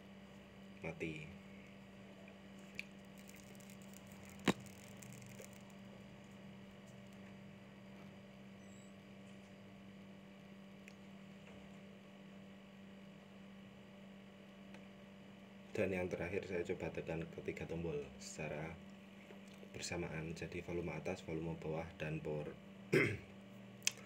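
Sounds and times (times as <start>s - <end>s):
low electrical hum: 0.0s - 24.0s
sharp click: 3.3s - 5.6s.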